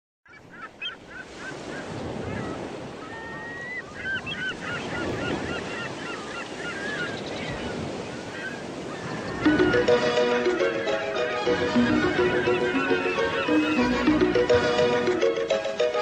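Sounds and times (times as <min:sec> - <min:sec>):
birds chirping and chattering: 0:11.7 - 0:15.2.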